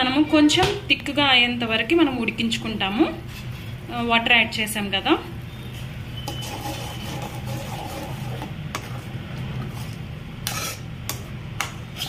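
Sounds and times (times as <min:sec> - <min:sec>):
metal spoon scraping a pan: 0:02.6 - 0:03.8, 0:05.7 - 0:12.0.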